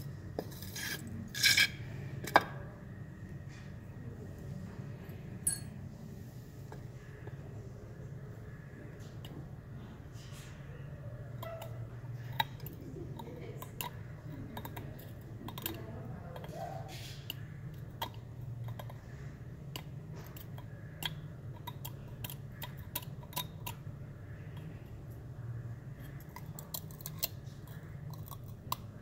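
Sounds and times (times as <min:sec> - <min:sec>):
steady low hum: 0:00.0 - 0:29.0
metal pick scraping and clicking: 0:00.4 - 0:01.8.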